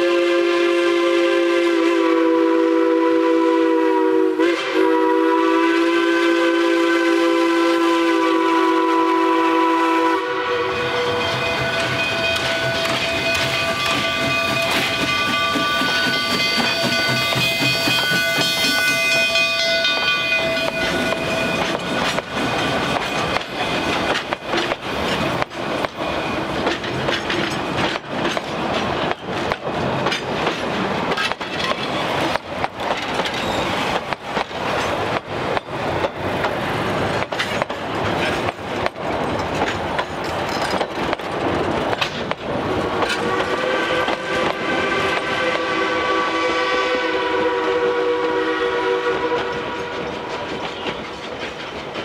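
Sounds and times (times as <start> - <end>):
steam locomotive whistle: 0.0 - 24.0, 43.0 - 51.0
train wheels clicking on track: 0.0 - 52.0.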